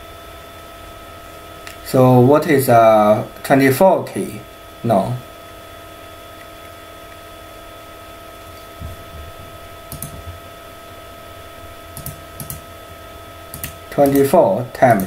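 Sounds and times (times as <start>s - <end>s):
electrical hum with thin tones: 0.0s - 15.0s
computer input clicks: 9.9s - 10.2s, 11.9s - 12.6s, 13.5s - 15.0s.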